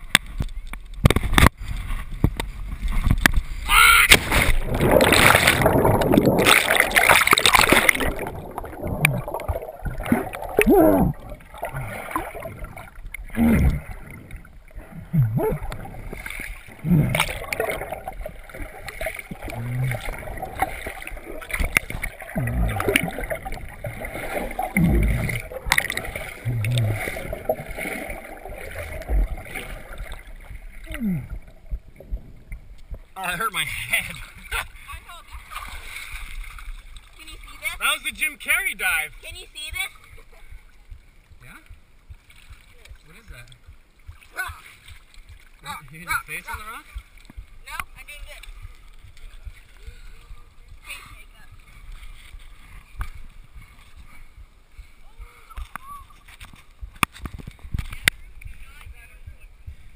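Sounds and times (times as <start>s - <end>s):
low gurgles: 0.0s - 37.8s, 39.7s - 59.9s
underwater bubbling rush: 1.1s - 34.5s
splash into water: 3.0s - 31.3s
person yelling: 3.7s - 4.2s.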